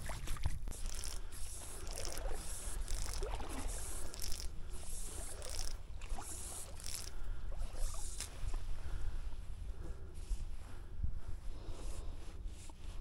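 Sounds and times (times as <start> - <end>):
wind rumbling on microphone: 0.0 - 1.4.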